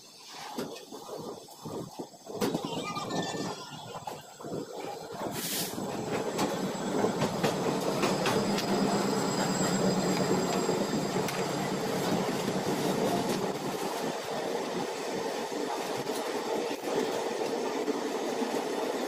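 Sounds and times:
train rumbling on rails: 0.2s - 19.0s
wheels clicking over rail joints: 4.0s - 14.1s
faint high wheel squeal: 5.5s - 13.3s.

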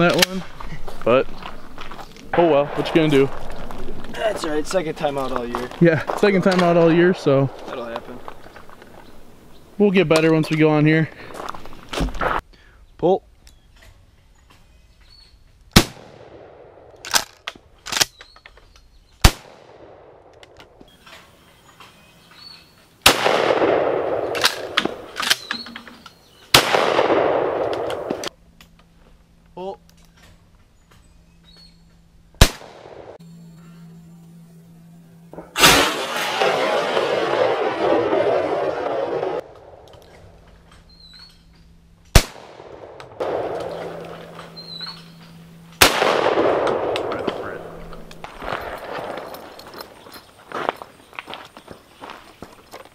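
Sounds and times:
shotgun blasts: 15.7s - 16.9s, 19.2s - 20.3s, 23.0s - 25.5s, 26.5s - 28.3s, 32.4s - 33.2s, 35.4s - 39.8s, 42.1s - 45.2s, 45.8s - 49.3s
sharp crack: 15.7s - 18.3s, 19.2s - 21.3s, 23.0s - 25.9s, 26.5s - 28.8s, 32.4s - 33.2s, 35.3s - 41.4s, 42.0s - 49.8s.

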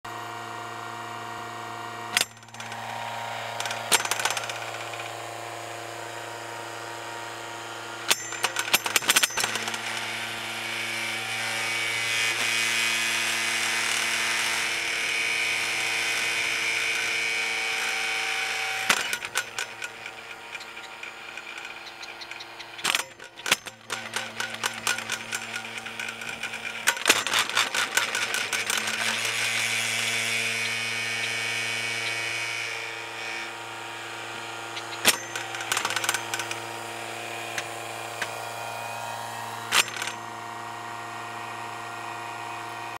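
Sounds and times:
telehandler engine hum: 0.1s - 42.9s
rattling knocks: 18.8s - 30.8s.

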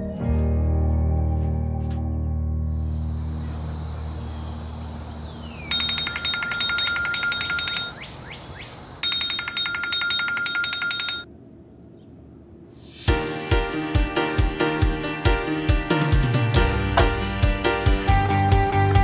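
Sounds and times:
soft music: 0.0s - 4.7s, 12.8s - 19.0s
smartphone alarm beeping: 5.7s - 8.1s, 9.0s - 11.3s.

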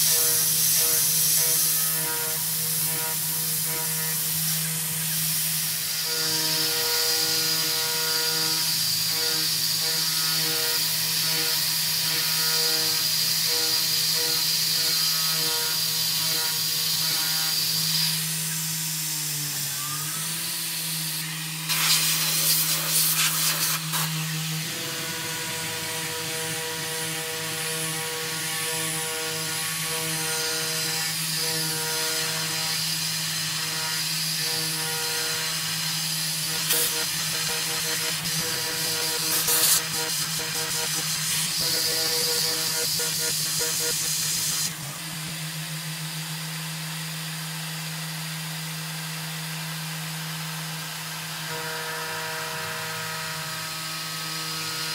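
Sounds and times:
end mill cutting metal hiss: 21.7s - 28.5s
milling machine spindle whine: 23.8s - 45.4s.

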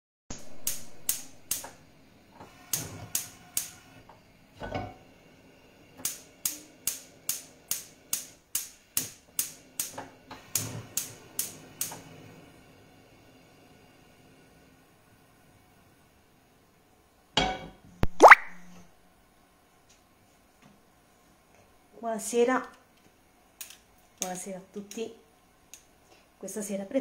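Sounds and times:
gas hob igniter clicking: 0.4s - 1.8s, 2.4s - 5.0s, 6.0s - 12.1s.

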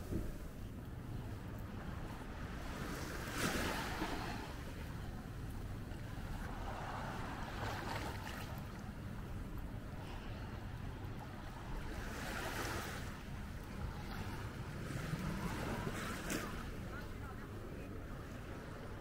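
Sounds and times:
sea waves washing in: 0.0s - 19.0s
wind rumble on microphone: 0.0s - 19.0s.

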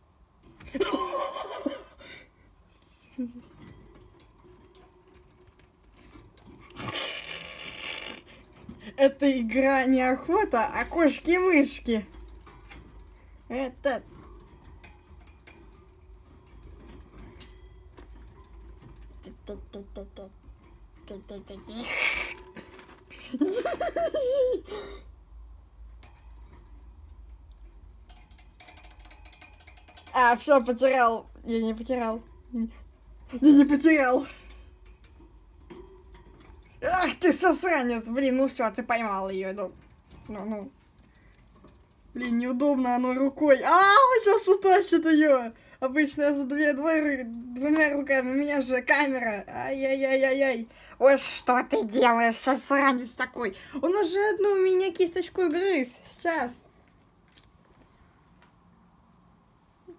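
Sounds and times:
rattling on wire cage: 0.4s - 25.0s, 25.6s - 57.6s
faint ticks on cage bars: 25.9s - 30.2s.

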